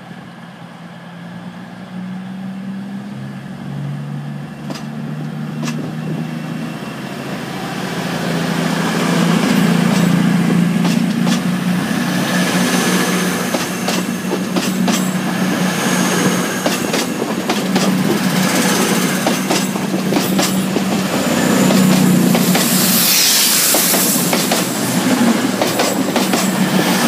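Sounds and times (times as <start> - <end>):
diesel train engine drone: 0.0 - 27.0
wheels clicking over rail joints: 4.6 - 5.9, 10.8 - 11.6, 16.6 - 22.7, 24.3 - 27.0
burst of hiss: 21.3 - 25.2.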